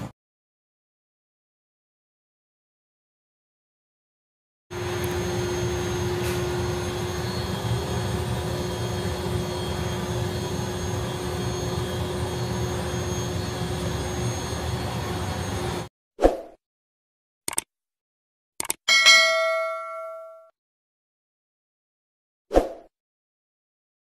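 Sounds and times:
kitchen fan whirring: 4.7 - 15.9.

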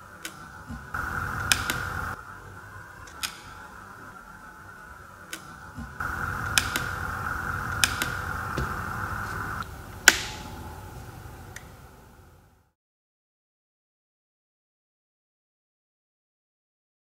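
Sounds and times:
whirring hum: 0.0 - 12.8
rocker switch clicks: 1.0 - 2.2, 3.1 - 3.6, 5.3 - 10.6.

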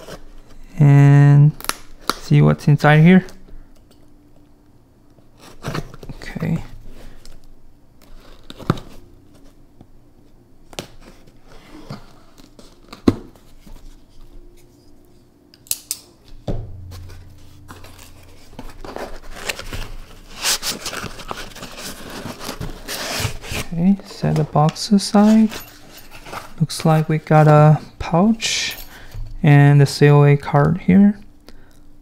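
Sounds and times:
packaging rustling: 19.2 - 26.6.

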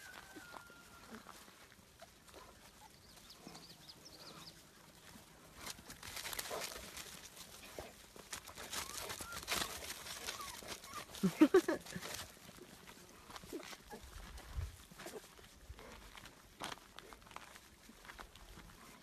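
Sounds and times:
rustling and crackling: 1.0 - 19.0
puppies squeaking and whining: 8.5 - 11.2.

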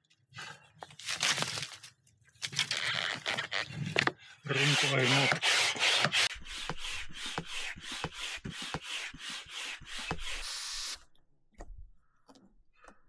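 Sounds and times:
hand air pump hissing: 4.6 - 11.1.

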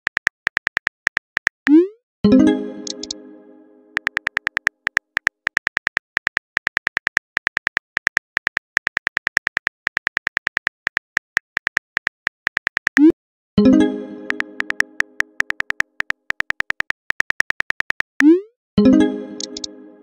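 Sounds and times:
message chime: 1.7 - 4.0, 13.6 - 15.4
phone keyboard key clicks: 2.8 - 3.2, 4.0 - 13.0, 14.3 - 18.2.

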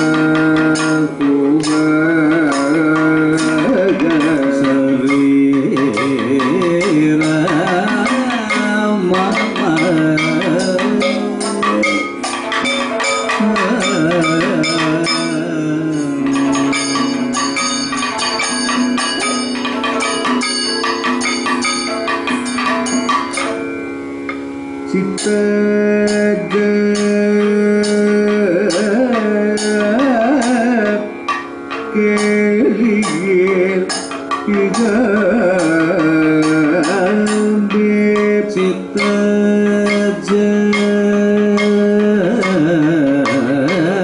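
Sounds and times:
man singing: 0.0 - 12.2, 13.2 - 17.7, 24.9 - 31.2, 31.9 - 44.0
drum strokes: 0.0 - 44.0
metallic percussion strikes: 0.0 - 44.0
steady drone: 0.0 - 44.0.

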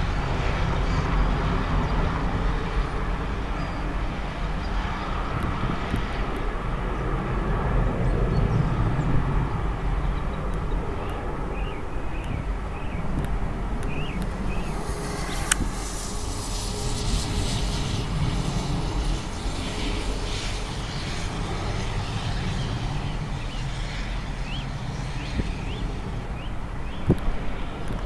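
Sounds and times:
low rumble: 0.0 - 27.9
jet engine rush: 0.0 - 28.0
hiss of water spray: 14.7 - 20.6
sharp click: 15.3 - 15.7.

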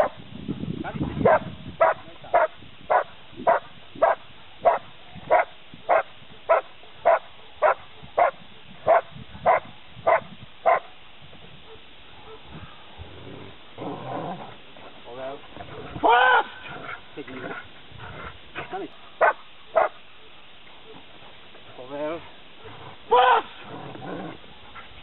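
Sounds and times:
dog barking: 1.2 - 10.9, 11.6 - 12.8, 19.0 - 21.0.

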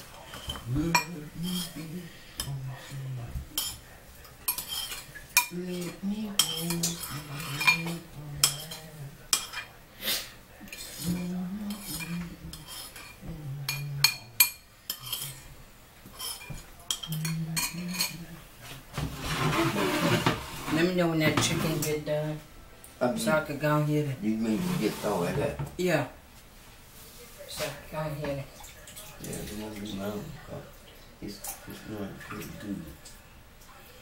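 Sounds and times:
utensils and dishes clinking: 0.0 - 9.8, 10.6 - 18.3, 18.9 - 22.0
low voice humming: 0.6 - 3.3.

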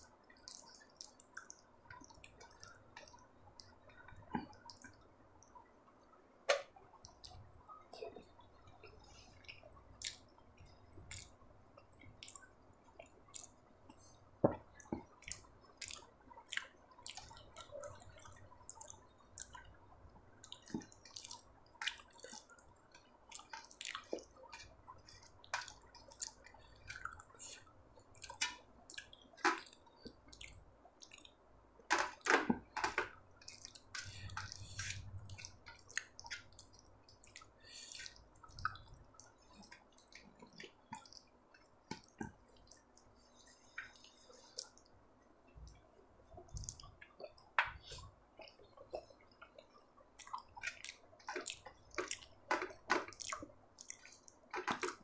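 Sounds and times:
fingers squishing sticky food: 0.3 - 55.0
mouth chewing wet smacks: 9.4 - 10.3, 11.1 - 11.4, 33.4 - 44.9, 46.4 - 55.0.

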